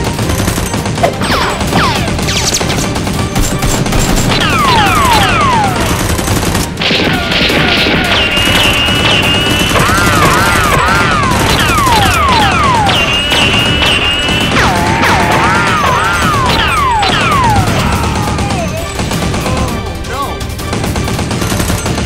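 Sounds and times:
rapid gunfire: 0.0 - 22.0
falling whistles: 12.4 - 14.5.

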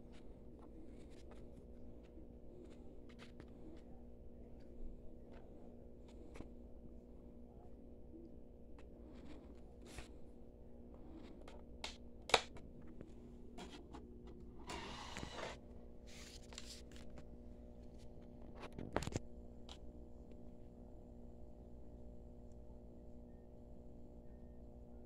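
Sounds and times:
steady low hum: 0.0 - 25.0
disc tray whirring: 13.5 - 15.9.

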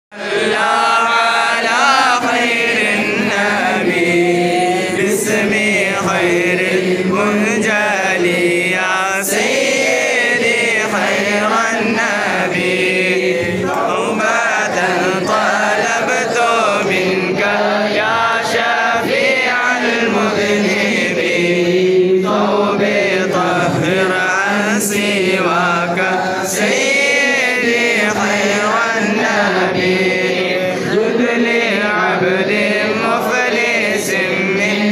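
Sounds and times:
men chanting together: 0.1 - 34.9
voice over microphone: 4.0 - 5.2.

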